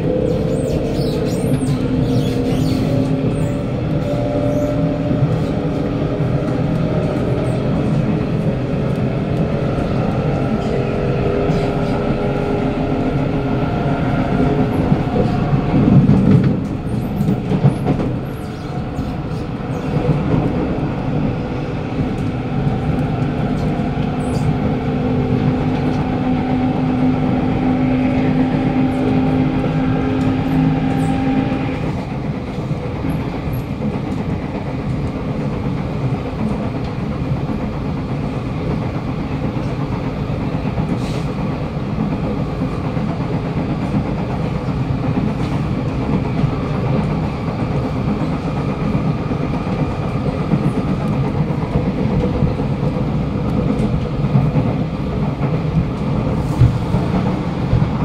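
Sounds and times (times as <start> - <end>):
train wheels rumbling on rails: 0.0 - 58.0.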